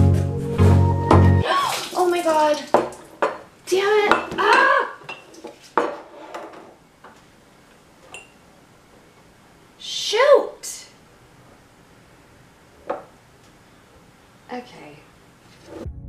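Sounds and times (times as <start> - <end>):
objects clattering on wooden table: 4.2 - 6.8.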